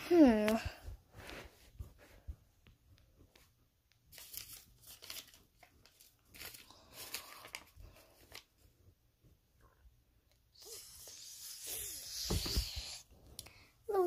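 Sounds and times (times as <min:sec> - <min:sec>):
faint rustling and crinkling: 0:00.0 - 0:10.0.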